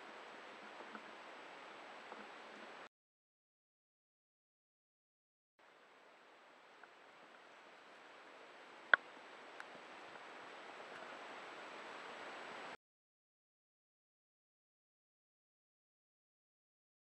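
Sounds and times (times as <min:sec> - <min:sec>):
faint ticks: 0:00.0 - 0:01.3, 0:02.0 - 0:02.9, 0:05.8 - 0:08.0, 0:08.8 - 0:11.3
wind and water hiss: 0:00.0 - 0:02.9, 0:05.6 - 0:12.8.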